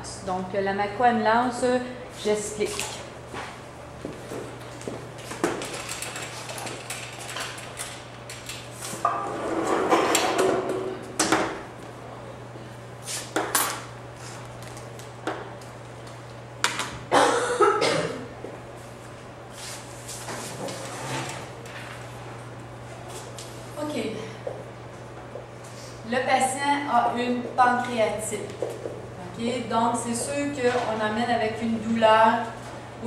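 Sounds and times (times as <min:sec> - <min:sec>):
steady low hum: 0:00.0 - 0:33.0
projection screen rattling as rolled up: 0:05.5 - 0:08.5.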